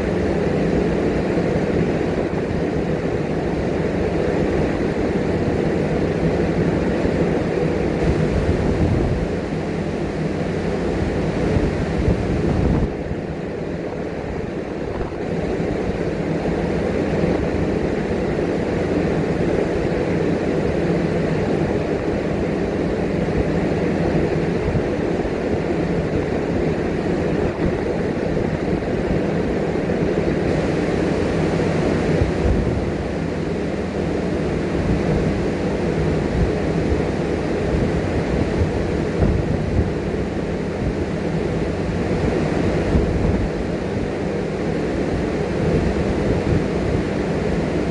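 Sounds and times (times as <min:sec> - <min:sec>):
calm sea: 0:00.0 - 0:47.9
faint steady hum: 0:00.0 - 0:47.9
wind rumbling on microphone: 0:00.0 - 0:47.9.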